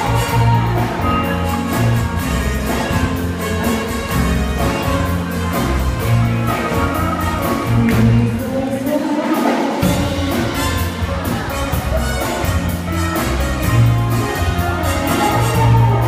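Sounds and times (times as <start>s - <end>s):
woman singing: 0.0s - 1.7s, 6.4s - 10.4s
live band playing dance music: 0.0s - 16.0s.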